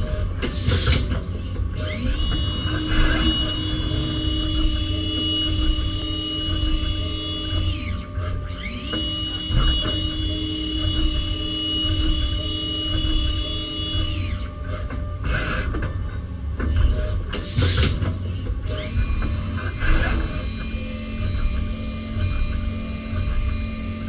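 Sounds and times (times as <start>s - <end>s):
spindle whine: 1.7s - 14.6s.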